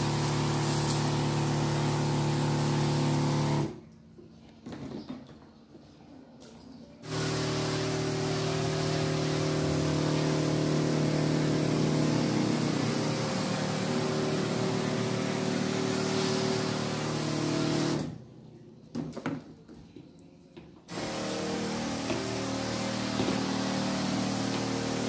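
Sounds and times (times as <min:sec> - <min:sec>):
sprayer pump motor hum: 0:00.0 - 0:03.8, 0:07.0 - 0:18.1, 0:20.9 - 0:25.0
nozzle mist hiss: 0:07.0 - 0:18.0.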